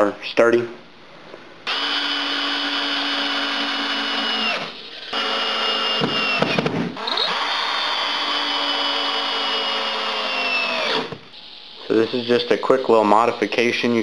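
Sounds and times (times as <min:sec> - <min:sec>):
power drill driving screws: 0:01.7 - 0:11.3.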